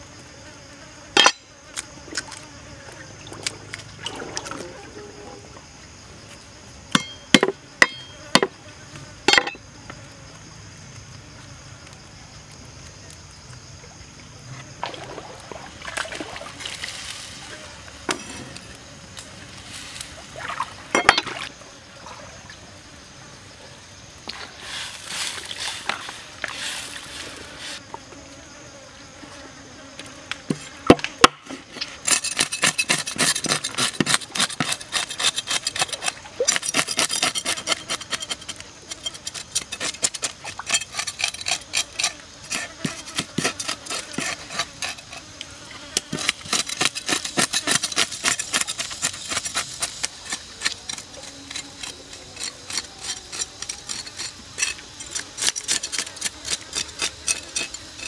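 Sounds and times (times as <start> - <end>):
sharp knocks on wooden board: 7.0 - 8.5
knife scraping fish scales: 31.7 - 45.4, 46.0 - 58.0.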